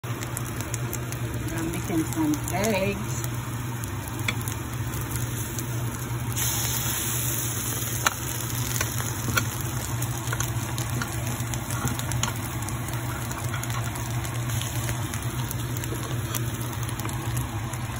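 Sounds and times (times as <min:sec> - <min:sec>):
eggs sizzling in a frying pan: 0:00.0 - 0:17.9.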